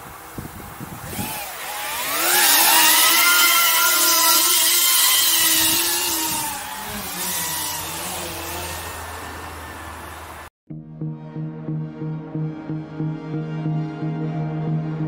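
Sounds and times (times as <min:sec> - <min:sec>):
electric ducted fans whining: 0:00.0 - 0:10.5.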